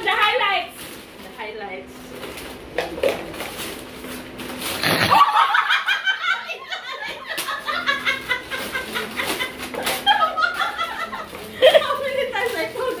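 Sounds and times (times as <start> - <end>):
wrapping paper rustling: 0.0 - 5.2, 7.3 - 13.0
woman laughing: 5.0 - 12.3.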